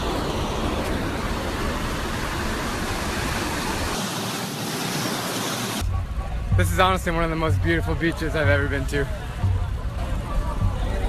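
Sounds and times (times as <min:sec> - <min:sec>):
surf on a beach: 0:00.0 - 0:05.8.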